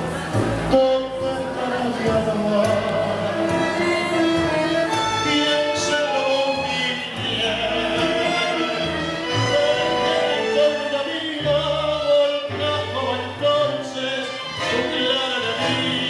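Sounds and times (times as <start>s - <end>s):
tango ensemble playing: 0.0s - 16.0s
man singing into a microphone: 0.7s - 16.0s.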